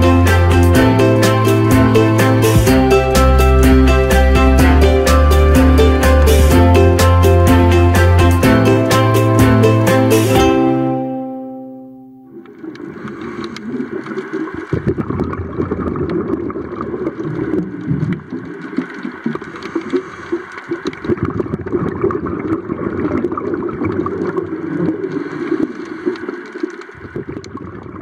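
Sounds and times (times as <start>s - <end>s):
small underwater clicks: 12.4s - 28.0s
underwater rushing and gurgling: 12.4s - 28.0s.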